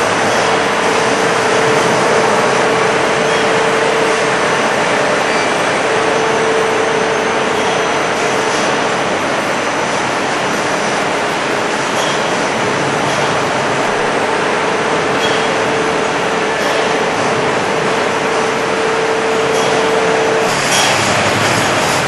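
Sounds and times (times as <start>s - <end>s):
factory machinery noise: 0.0s - 22.0s
mid-pitched hum: 0.0s - 22.0s.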